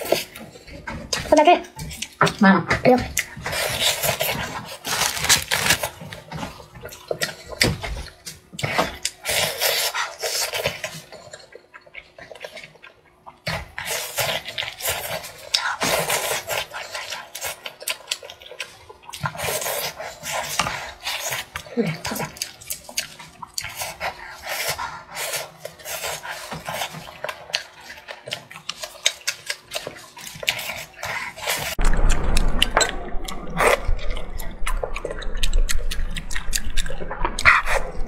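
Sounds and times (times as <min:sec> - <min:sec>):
chewing fried chicken: 0:03.0 - 0:32.2, 0:34.4 - 0:38.0
crackly mouth clicks: 0:20.5 - 0:24.2, 0:34.1 - 0:38.0.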